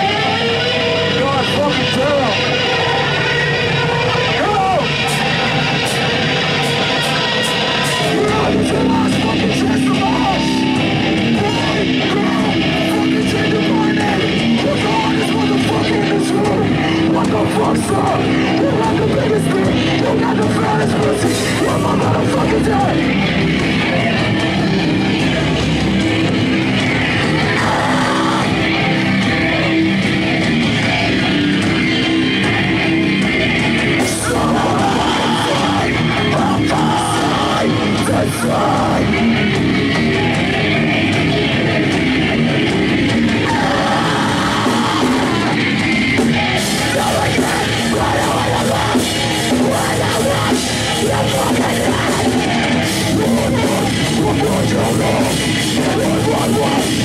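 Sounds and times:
hardcore band playing live: 0:00.0 - 0:57.0.

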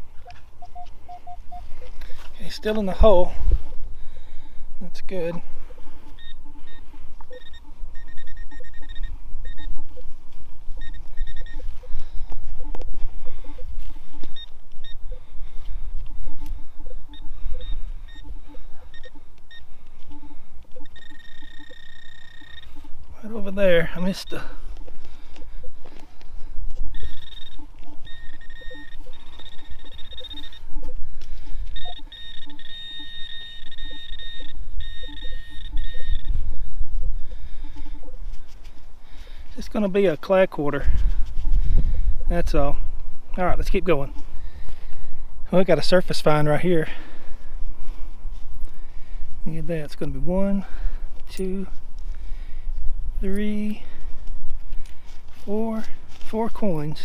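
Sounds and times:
metal detector low blips: 0:00.0 - 0:03.9, 0:05.0 - 0:38.9
pinpointer short high beeps: 0:00.2 - 0:01.9, 0:06.0 - 0:10.1, 0:10.8 - 0:15.2, 0:16.2 - 0:23.0, 0:26.8 - 0:36.4
soil and grass scraping: 0:53.2 - 0:57.0.

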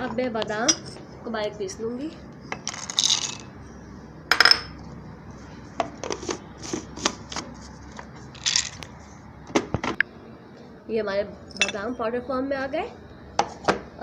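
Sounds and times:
bowls and jar clinking: 0:00.0 - 0:01.1, 0:02.5 - 0:03.5, 0:04.3 - 0:04.8, 0:08.4 - 0:08.9, 0:11.5 - 0:12.0.

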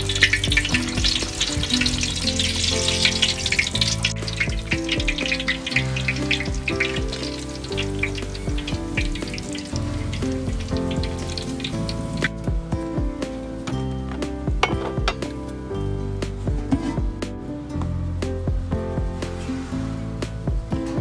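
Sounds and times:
hot oil sizzling and crackling: 0:00.0 - 0:12.5
melodic music: 0:00.0 - 0:21.0.

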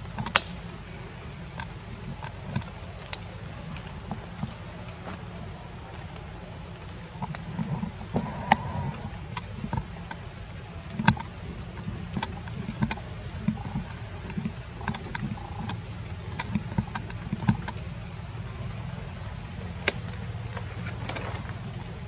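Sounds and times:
steady low rumble: 0:00.0 - 0:22.0
twigs and leaves crackling: 0:19.8 - 0:22.0.

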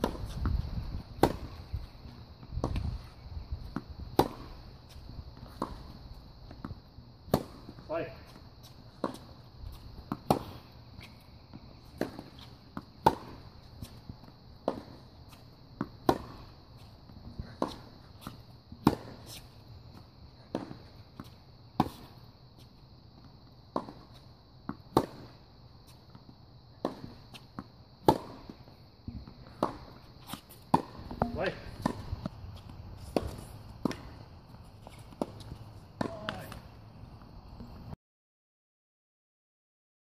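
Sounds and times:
tennis balls struck with rackets: 0:00.0 - 0:03.1, 0:03.7 - 0:04.6, 0:06.5 - 0:08.2, 0:10.0 - 0:10.6, 0:11.6 - 0:13.5, 0:14.6 - 0:15.1, 0:15.7 - 0:16.5, 0:18.8 - 0:19.3, 0:23.7 - 0:25.4, 0:26.2 - 0:36.7
tennis balls bouncing on hard court: 0:00.0 - 0:19.4, 0:20.4 - 0:22.2, 0:23.2 - 0:25.4, 0:26.1 - 0:36.7.

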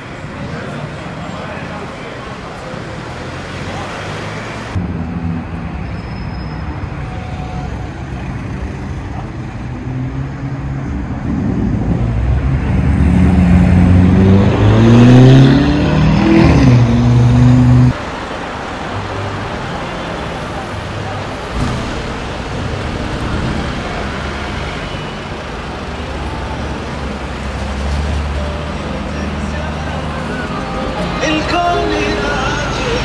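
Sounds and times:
car engine accelerating hard: 0:09.7 - 0:18.0.

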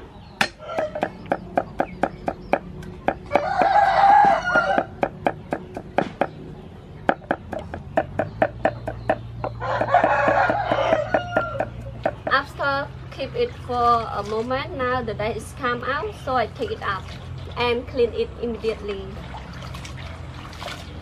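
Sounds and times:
cleaver chopping on wooden block: 0:00.4 - 0:06.4, 0:07.1 - 0:12.4
rooster crowing: 0:00.5 - 0:01.1, 0:03.3 - 0:05.1, 0:09.6 - 0:11.8.

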